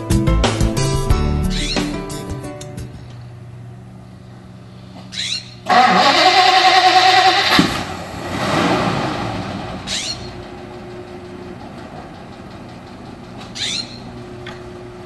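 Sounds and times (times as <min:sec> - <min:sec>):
starter cranking engine: 0:05.7 - 0:07.9.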